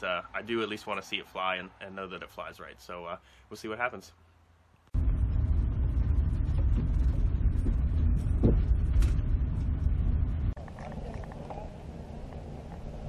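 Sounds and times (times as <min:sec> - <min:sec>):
car cabin road rumble: 0:04.9 - 0:13.0.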